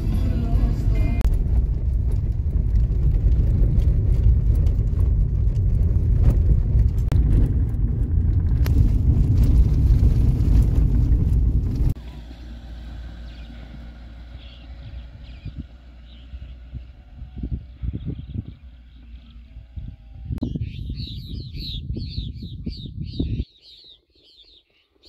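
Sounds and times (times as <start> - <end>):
car engine and tyres rumbling: 0.0 - 23.3
open-air ambience: 11.9 - 25.0.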